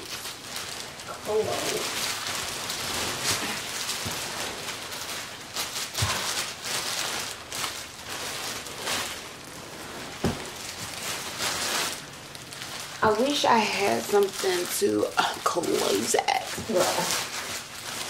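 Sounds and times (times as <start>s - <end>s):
furniture being shifted: 8.2s - 12.0s.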